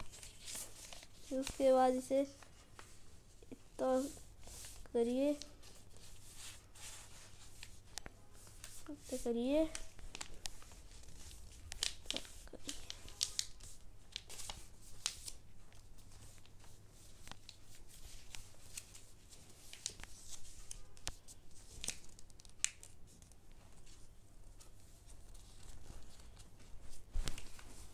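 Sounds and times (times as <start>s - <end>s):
paper being folded and creased: 0.0s - 27.9s.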